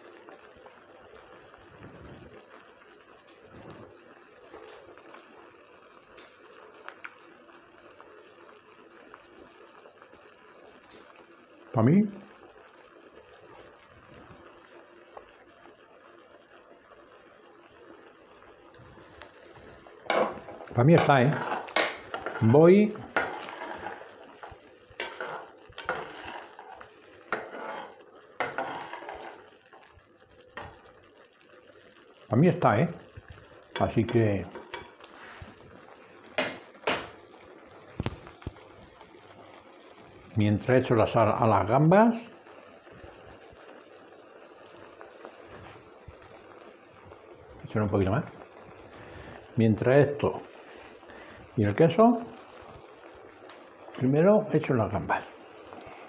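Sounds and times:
pot bubbling: 0.0 - 56.0
spatula stirring wet rice: 19.1 - 29.9, 41.1 - 45.9.

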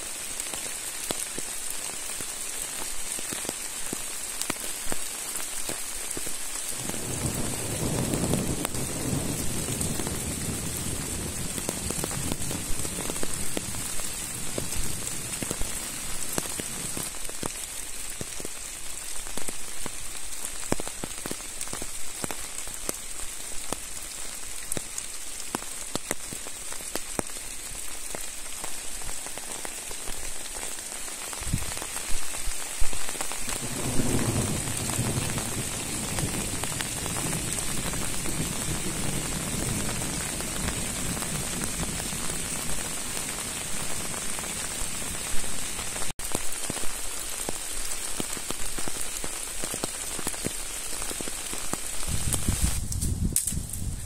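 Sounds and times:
steady rain drops: 0.0 - 54.0.

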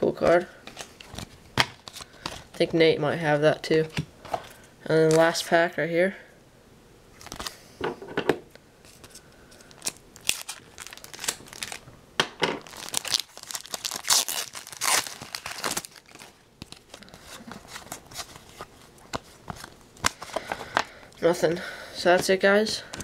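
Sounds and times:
wrapper tearing and crinkling: 0.7 - 2.6, 7.2 - 7.6, 8.9 - 11.8, 12.6 - 20.7.

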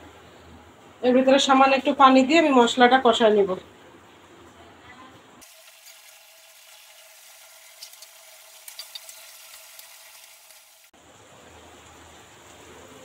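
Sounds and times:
paste bubbling and sizzling: 5.4 - 11.0.

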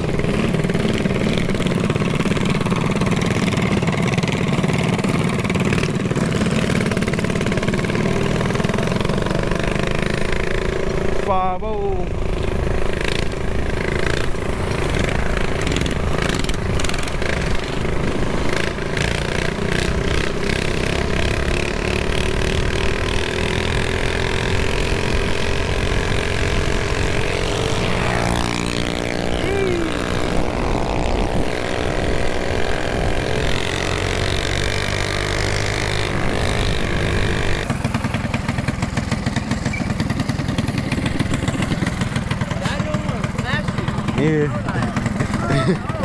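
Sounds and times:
mini bike engine running: 0.0 - 46.0
wind on microphone: 29.2 - 33.6.

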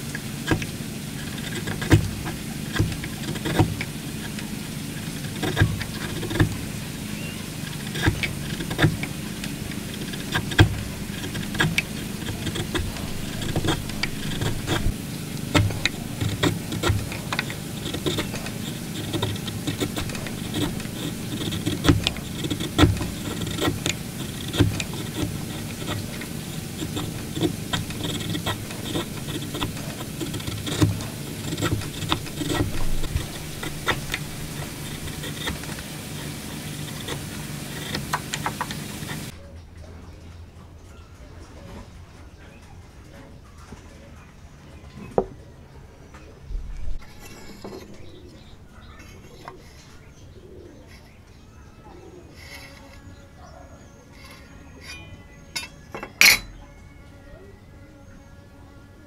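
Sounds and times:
low background hum: 0.0 - 59.0
chisel crunching into wood: 0.4 - 6.8.

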